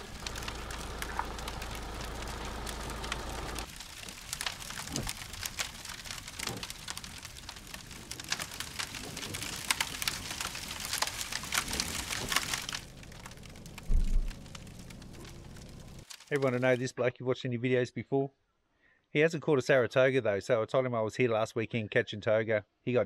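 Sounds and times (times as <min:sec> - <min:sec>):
low rumble: 0:00.0 - 0:03.7
fire crackling and popping: 0:00.0 - 0:16.8.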